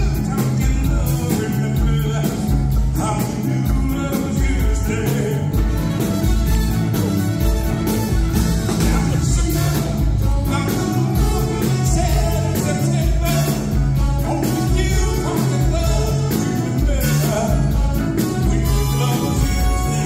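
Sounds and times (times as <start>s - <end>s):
person singing: 0.0s - 6.0s, 8.7s - 20.0s
live band playing upbeat song: 0.0s - 20.0s.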